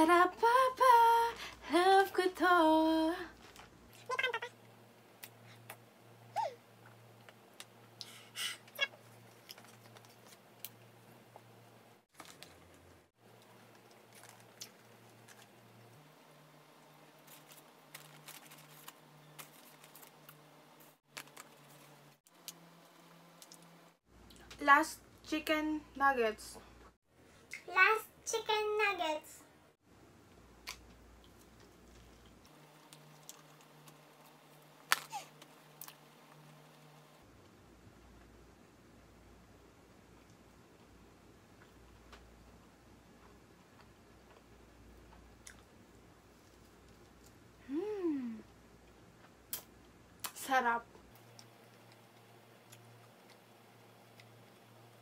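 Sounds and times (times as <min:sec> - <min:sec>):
quiet chewing: 0:12.2 - 0:16.0, 0:30.6 - 0:36.7
paper packaging rustling: 0:17.2 - 0:20.2.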